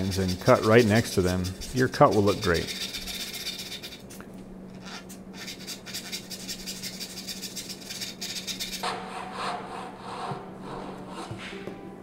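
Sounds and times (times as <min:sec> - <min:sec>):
saw rasping through wood: 0:00.0 - 0:04.0.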